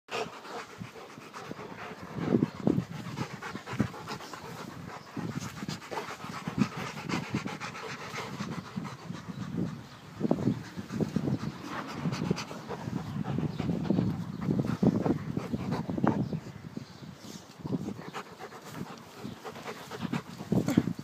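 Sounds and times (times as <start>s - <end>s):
dogs panting: 0.1s - 16.6s, 17.2s - 21.0s.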